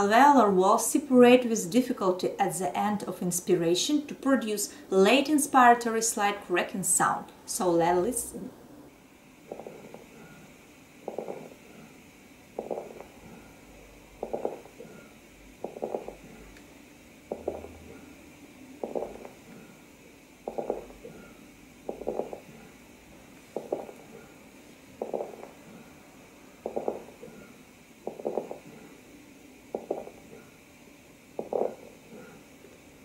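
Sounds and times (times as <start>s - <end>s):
steady hiss: 0.0s - 33.0s
fine crackling through stethoscope: 9.5s - 10.1s, 11.0s - 11.6s, 12.6s - 13.2s, 14.2s - 14.9s, 15.6s - 16.6s, 18.8s - 19.4s, 20.5s - 21.1s, 21.9s - 22.5s, 23.5s - 24.1s, 25.0s - 25.6s, 26.6s - 27.4s, 28.1s - 28.7s, 29.8s - 30.2s, 31.4s - 32.3s.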